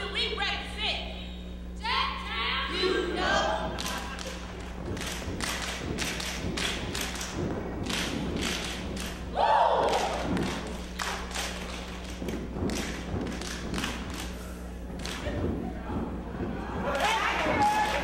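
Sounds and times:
rhythmic foot stomps: 0:02.8 - 0:18.0
hand claps: 0:03.7 - 0:18.0
loud shout: 0:09.3 - 0:10.2, 0:16.9 - 0:18.0.

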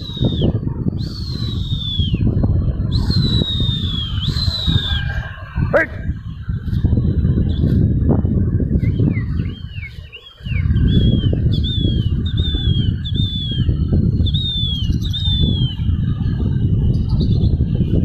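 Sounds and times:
wind buffeting microphone: 0:00.0 - 0:18.0
bird chirping: 0:08.7 - 0:17.7.

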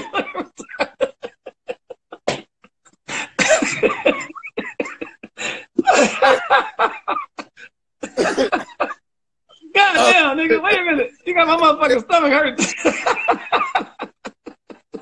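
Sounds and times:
man laughing hard: 0:00.0 - 0:02.3, 0:03.1 - 0:09.0, 0:12.6 - 0:15.0.

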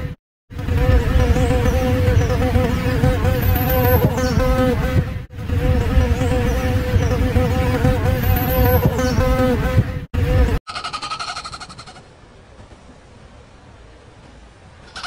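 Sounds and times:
bees buzzing: 0:00.0 - 0:10.6.

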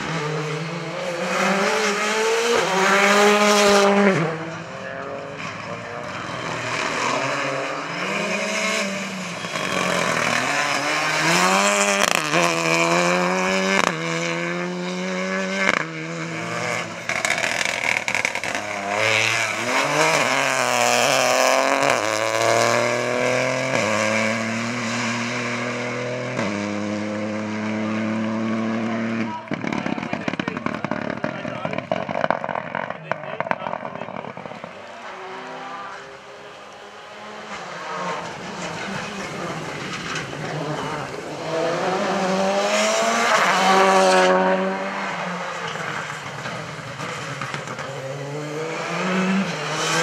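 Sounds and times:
rally car engines revving: 0:00.0 - 0:50.0.

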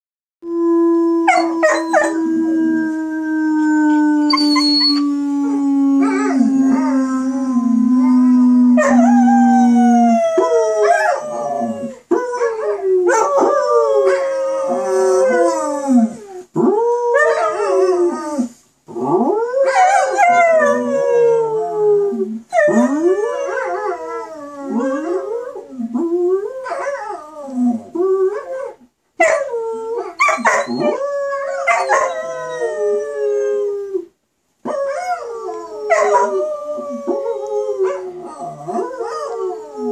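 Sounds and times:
puppy howling and yipping: 0:03.9 - 0:05.0, 0:34.7 - 0:39.9.

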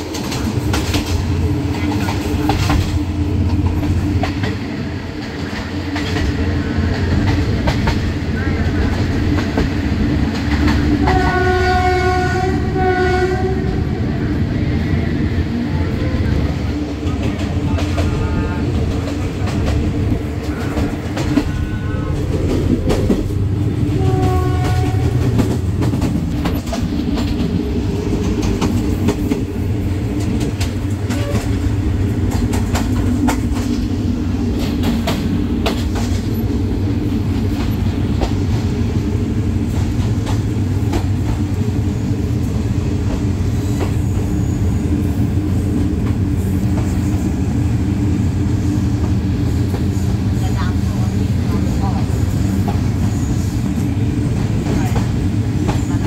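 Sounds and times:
wheels clicking over rail joints: 0:17.0 - 0:38.7.

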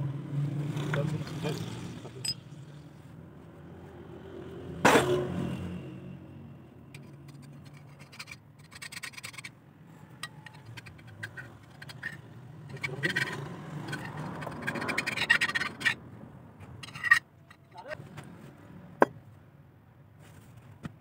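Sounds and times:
hand scraping on metal: 0:07.0 - 0:16.0, 0:16.6 - 0:18.1.

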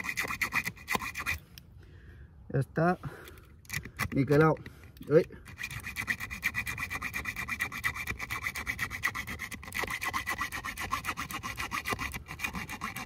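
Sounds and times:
saw blade rasping through stick: 0:00.0 - 0:01.4, 0:03.7 - 0:13.0.

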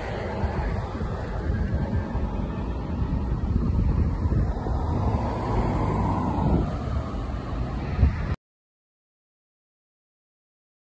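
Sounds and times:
road traffic noise: 0:00.0 - 0:08.4
vehicle passing: 0:00.0 - 0:08.4
wind rumble on microphone: 0:00.0 - 0:08.4.

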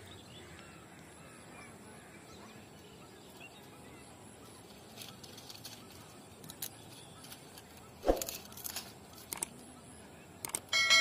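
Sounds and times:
distant bird calls: 0:00.0 - 0:11.0
dogs crunching dry twigs: 0:04.5 - 0:09.6.

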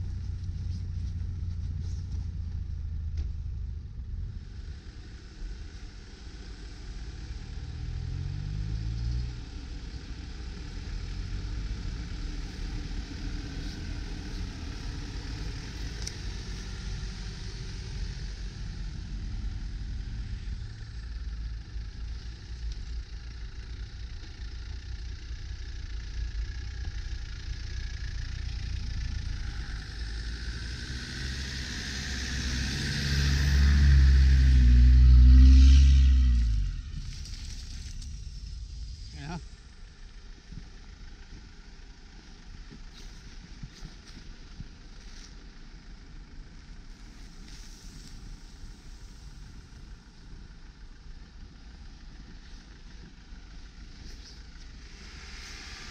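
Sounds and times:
vehicle engine running: 0:00.0 - 0:55.9
tyres churning snow: 0:26.1 - 0:55.9.

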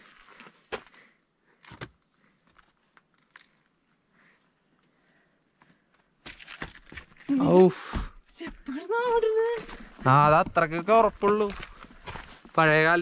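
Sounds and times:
footsteps on wobbly steps: 0:06.2 - 0:12.8.

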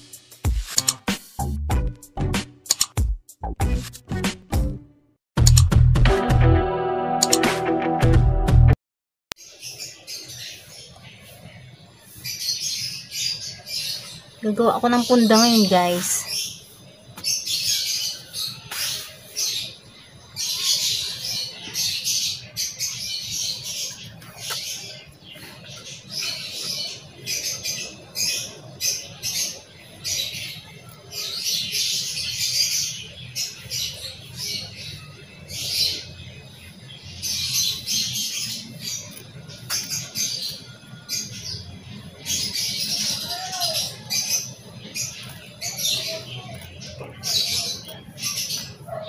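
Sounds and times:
sharp click: 0:00.7 - 0:01.1, 0:02.6 - 0:03.0, 0:05.4 - 0:05.8, 0:07.2 - 0:07.6
birds singing: 0:09.4 - 0:49.0.

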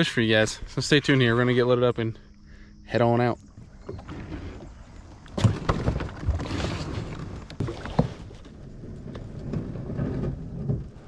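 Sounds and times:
kayak gear knocks and thumps: 0:03.9 - 0:11.0.

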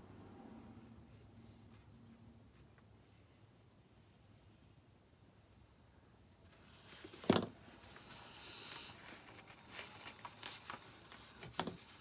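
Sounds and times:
paper rustling: 0:09.0 - 0:12.0.

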